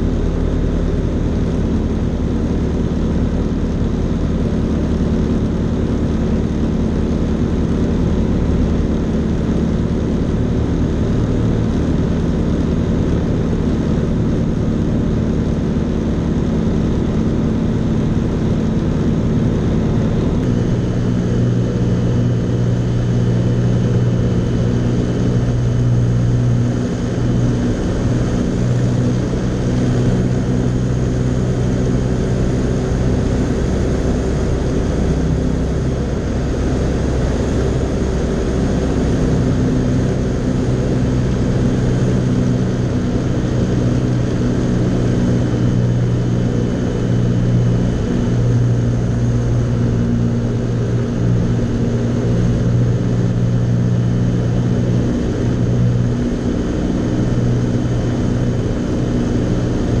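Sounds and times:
aircraft engine droning: 0.0s - 60.0s.

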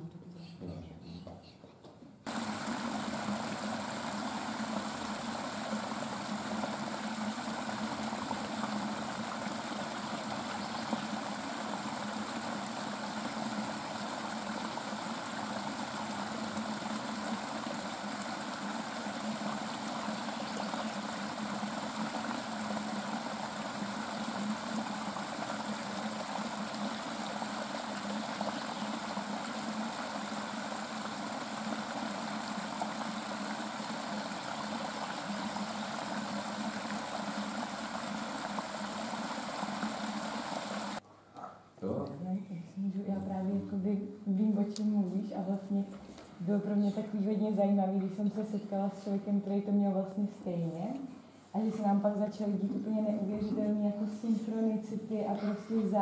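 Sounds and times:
stream rushing over rocks: 2.3s - 41.0s.

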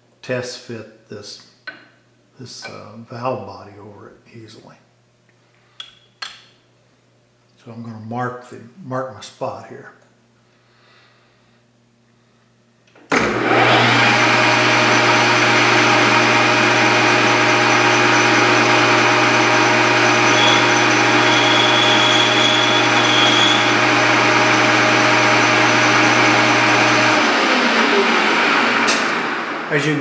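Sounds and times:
lathe motor humming: 13.2s - 29.7s
faint high whine: 20.3s - 23.7s.

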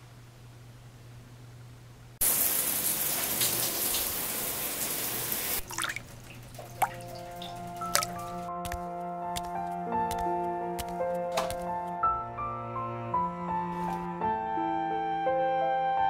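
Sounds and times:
shower spray: 2.2s - 8.2s
water dripping: 2.2s - 8.8s.

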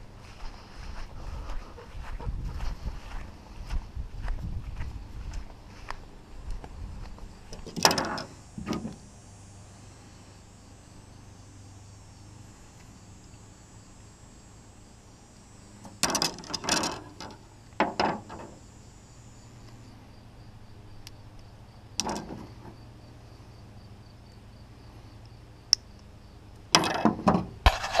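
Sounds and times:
insects chirping: 0.0s - 28.0s
arrows clattering on plastic: 15.8s - 18.5s, 22.0s - 22.7s, 26.8s - 28.0s.

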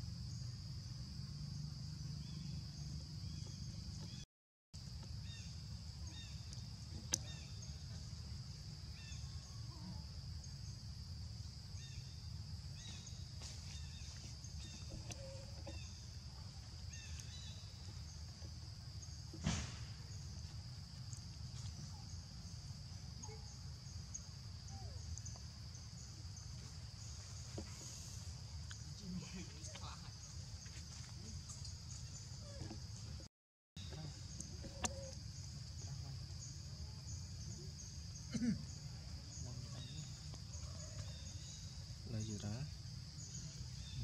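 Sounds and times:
faint chirps: 5.0s - 18.4s, 33.8s - 44.0s.

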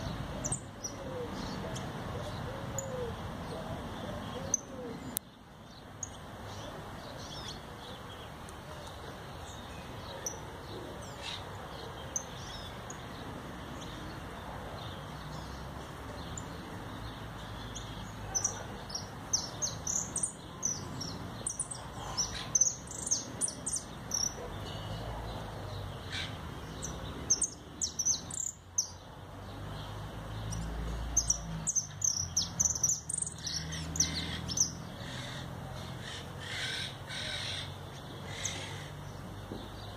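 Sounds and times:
bird singing rapid chirps and trills: 9.4s - 39.9s.

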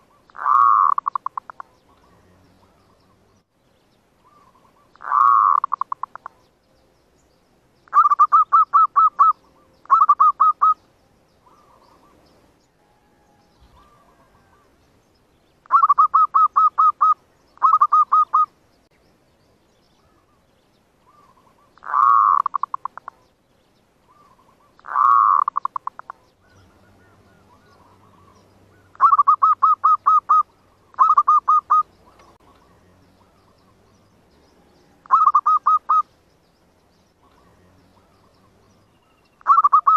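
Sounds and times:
doves cooing: 0.0s - 3.3s, 4.2s - 6.5s, 7.9s - 10.8s, 11.4s - 14.8s, 15.6s - 18.5s, 21.0s - 23.2s, 24.0s - 36.1s, 37.2s - 39.9s.

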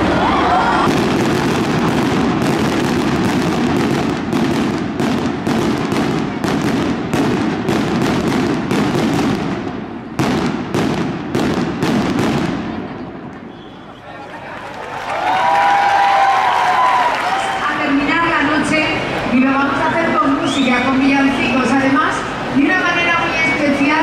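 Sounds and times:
continuous fireworks rumble: 0.0s - 13.5s
fireworks bangs: 0.0s - 14.0s.

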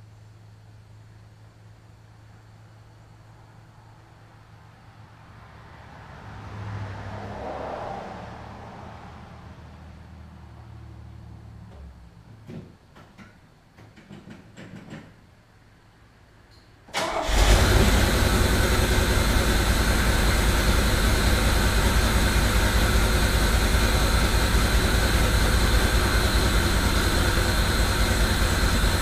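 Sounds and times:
car engine idling: 17.0s - 29.0s.

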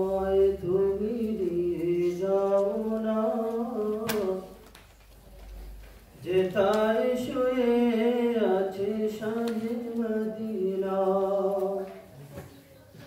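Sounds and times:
man singing unaccompanied: 0.0s - 4.6s, 6.2s - 11.9s.

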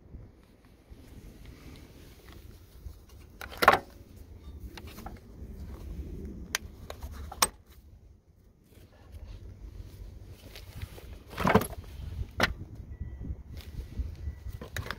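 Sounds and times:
low rumble: 3.9s - 14.6s.

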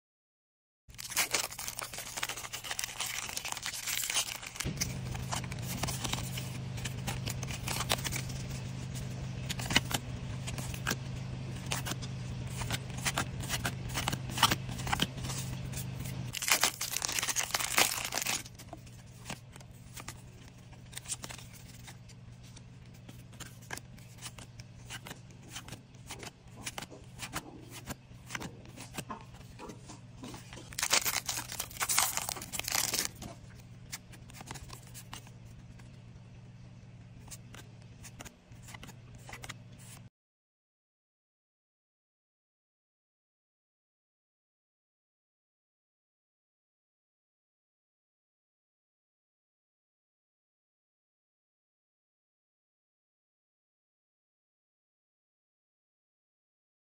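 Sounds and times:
foil wrapper crinkling: 0.9s - 8.5s, 12.6s - 20.2s, 30.2s - 33.3s
low hum: 0.9s - 40.0s
trading cards being flipped: 1.0s - 35.9s, 37.2s - 40.0s.

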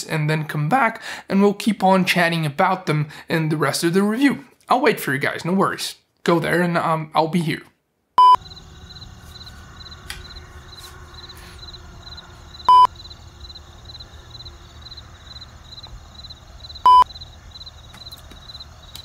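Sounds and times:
short electronic beep: 8.2s - 8.4s, 12.7s - 12.9s, 16.9s - 17.1s
crickets chirping: 8.3s - 19.0s
low hum: 8.4s - 19.0s.

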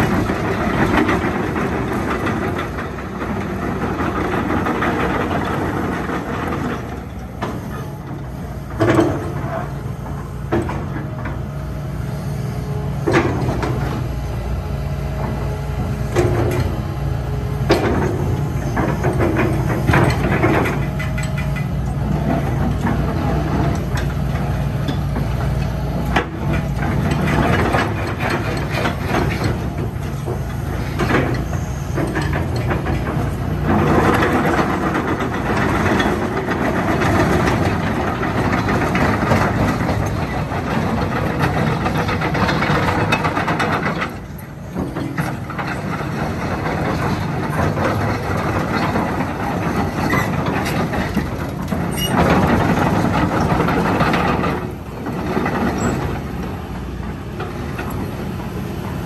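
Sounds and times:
crawler tracks clattering: 0.0s - 59.0s
excavator diesel engine under load: 0.0s - 59.0s.

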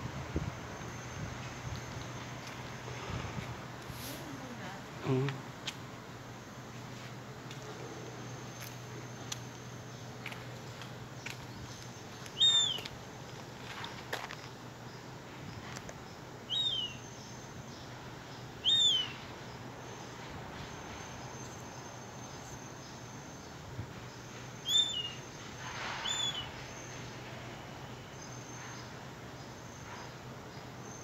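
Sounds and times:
gull whistled calls: 12.4s - 12.9s, 16.5s - 17.0s, 18.6s - 19.2s, 24.6s - 25.3s, 26.0s - 26.5s.

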